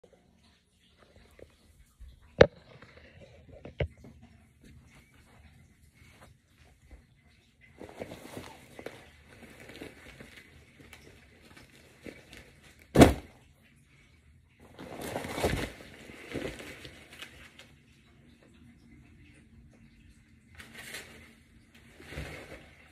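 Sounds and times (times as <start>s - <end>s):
nylon fabric rustling: 20.6s - 22.9s.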